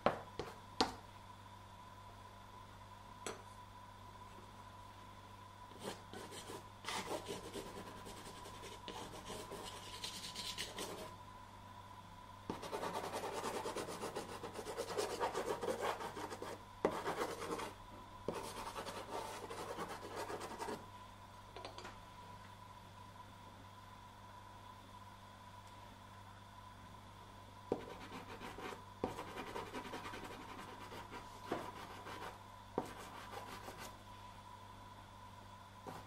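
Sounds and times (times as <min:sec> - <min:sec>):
pastel scratching on paper: 0:06.2 - 0:11.1, 0:12.5 - 0:17.7.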